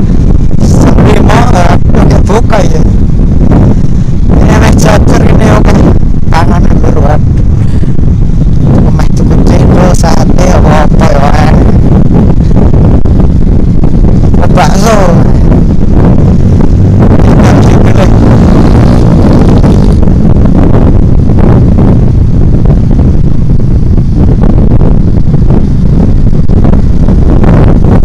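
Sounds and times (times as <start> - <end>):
motorcycle engine humming: 0.0 - 0.6, 2.9 - 4.4, 5.7 - 9.0, 11.6 - 28.0
wind rush on microphone: 0.0 - 28.0
tyre noise on road: 15.2 - 28.0.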